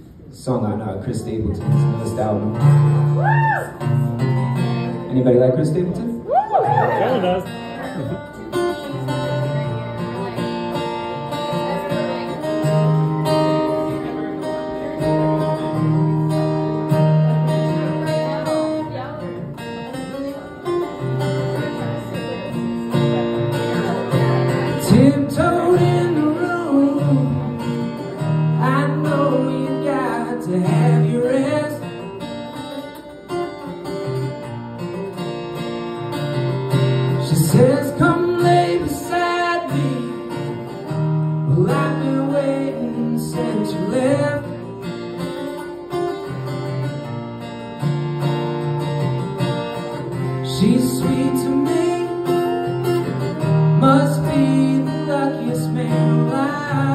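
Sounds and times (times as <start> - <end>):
acoustic guitar strumming: 0.0 - 56.9
man singing: 23.8 - 32.1, 37.1 - 44.9, 50.1 - 56.9.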